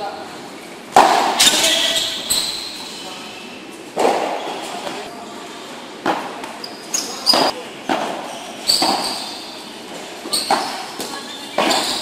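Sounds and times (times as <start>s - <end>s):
ball struck by paddles: 0.9s - 1.6s, 7.3s - 9.2s, 10.4s - 12.0s.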